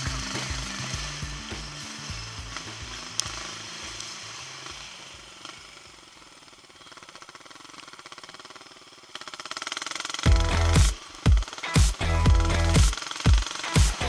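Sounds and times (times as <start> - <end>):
background music: 0.0 - 4.8, 10.3 - 14.0
motorcycle engine running: 0.0 - 14.0.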